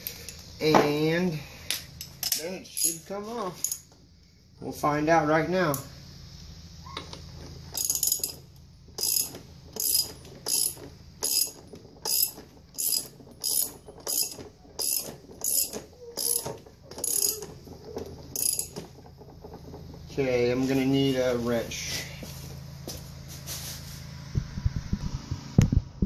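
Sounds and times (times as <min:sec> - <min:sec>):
ratchet wrench clicking: 0:07.7 - 0:08.4, 0:09.0 - 0:17.5, 0:18.3 - 0:18.8.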